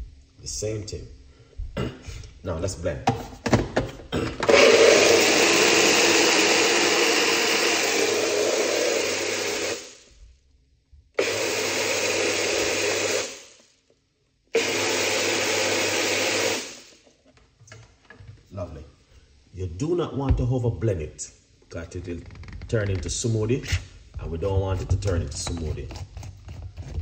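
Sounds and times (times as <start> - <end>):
blender running: 4.4 - 10.0, 11.2 - 13.6, 14.5 - 17.0.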